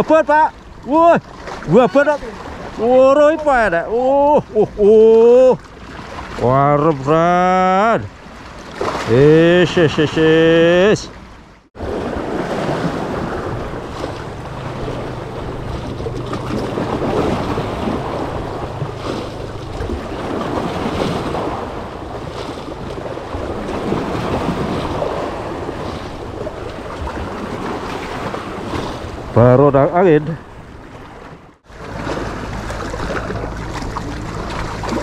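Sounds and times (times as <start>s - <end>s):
wind on microphone: 11.8s - 29.4s
waves washing against rocks: 11.8s - 35.0s.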